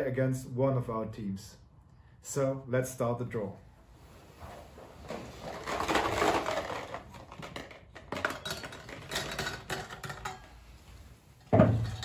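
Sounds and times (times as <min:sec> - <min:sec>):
rustling and movement: 0:03.8 - 0:12.0
draw balls rattling in globe: 0:05.1 - 0:10.7.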